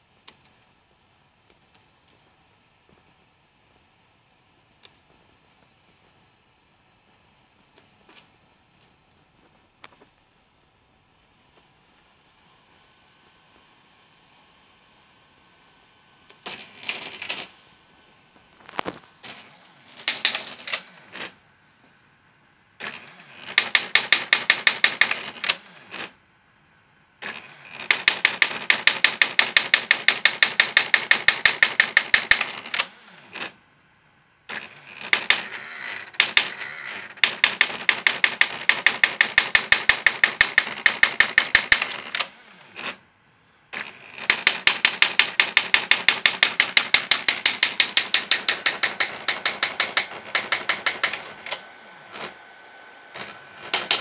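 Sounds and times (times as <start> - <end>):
stepper motors shifting carriage: 18.6 - 21.4, 43.8 - 54.0
typewriter hammer strikes: 20.0 - 20.9, 23.4 - 25.6, 27.8 - 32.9, 35.1 - 36.6, 37.2 - 42.3, 44.2 - 52.3, 53.2 - 54.0.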